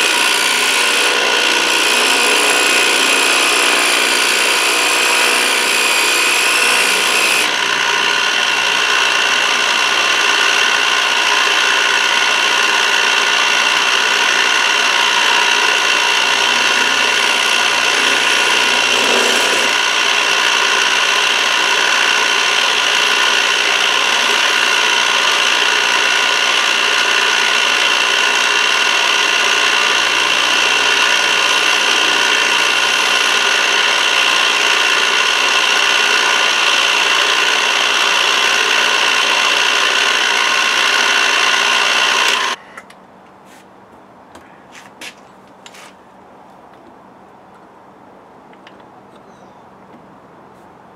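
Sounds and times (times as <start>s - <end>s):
end mill grinding metal: 0.0s - 42.6s
milling machine whine: 0.0s - 42.6s.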